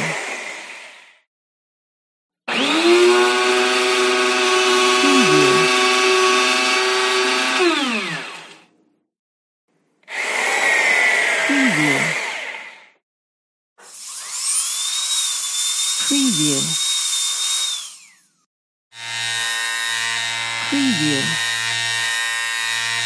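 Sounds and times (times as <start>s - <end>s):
power drill boring into wood: 2.5s - 8.7s, 13.8s - 23.0s.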